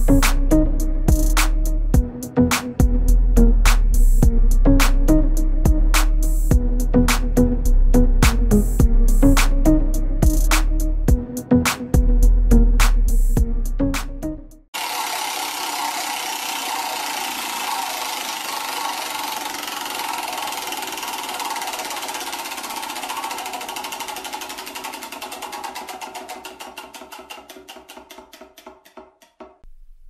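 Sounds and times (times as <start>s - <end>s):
prize wheel pointer clicking: 14.8s - 28.7s.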